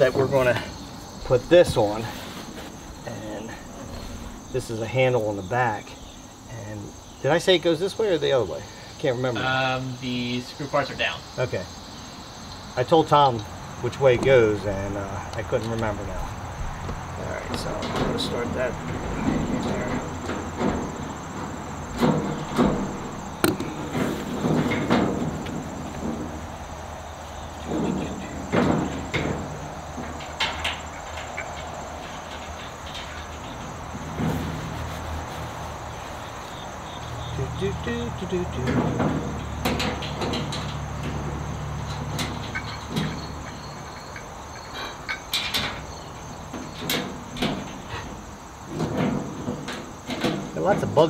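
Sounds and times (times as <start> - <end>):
insects chirring: 0.0 - 51.0
metal clanks on sheet metal: 15.8 - 26.7, 27.4 - 34.8, 37.0 - 51.0.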